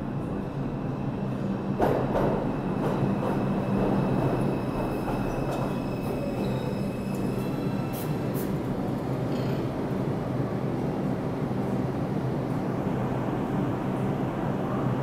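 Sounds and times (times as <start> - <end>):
subway train wheels rumbling: 0.0 - 15.0.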